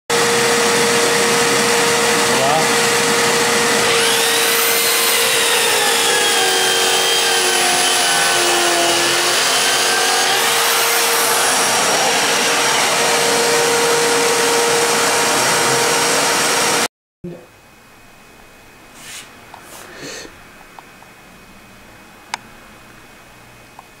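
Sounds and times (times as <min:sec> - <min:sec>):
grooving machine motor whine: 0:00.2 - 0:16.9
vacuum dust extractor hiss: 0:09.7 - 0:16.8, 0:18.9 - 0:20.3.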